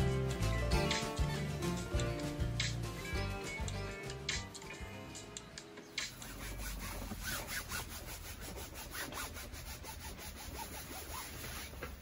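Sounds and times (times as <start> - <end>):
rhythmic rasping rubbing strokes: 5.9 - 12.0.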